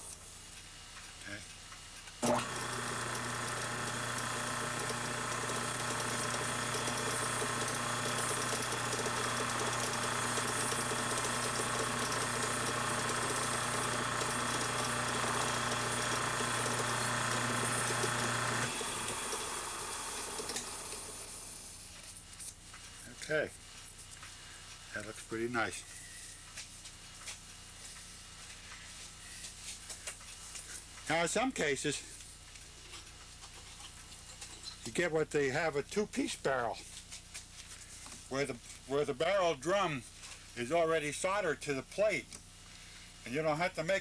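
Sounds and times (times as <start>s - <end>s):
lathe motor humming: 2.2s - 21.8s
lathe spinning down whir: 2.2s - 21.8s.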